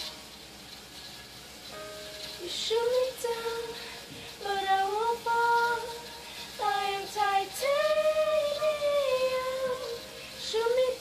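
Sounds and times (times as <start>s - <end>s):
girl singing unaccompanied: 2.4s - 11.0s.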